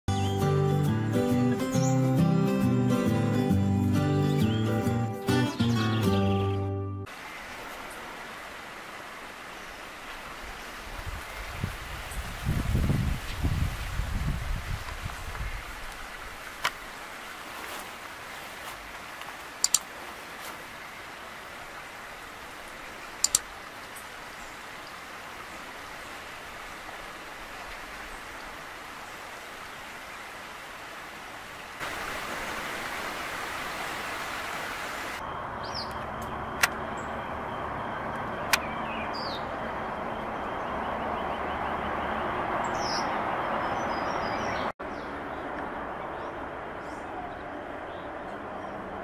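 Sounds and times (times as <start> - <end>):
outdoor background noise: 5.6 - 49.0
sharp clicks: 19.6 - 19.9, 23.2 - 23.5, 38.5 - 38.7.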